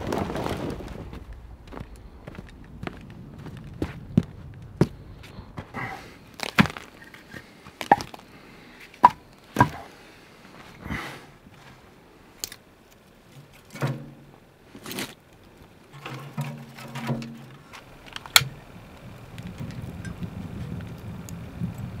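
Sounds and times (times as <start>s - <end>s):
kindling and paper rustling: 0.0s - 1.4s
firewood logs knocking: 0.0s - 8.3s, 9.0s - 10.0s, 13.3s - 14.4s.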